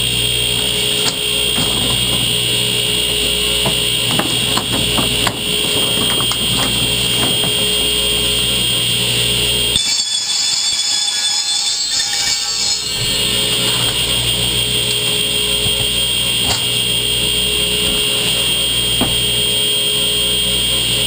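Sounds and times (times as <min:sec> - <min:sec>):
different high whine: 0:00.0 - 0:21.0
shop machine high whine: 0:00.0 - 0:21.0
plastic pipes clattering: 0:00.6 - 0:09.4.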